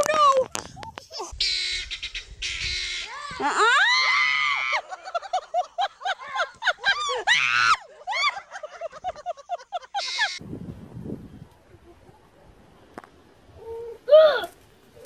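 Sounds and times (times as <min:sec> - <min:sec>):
child screaming: 0:02.9 - 0:04.8.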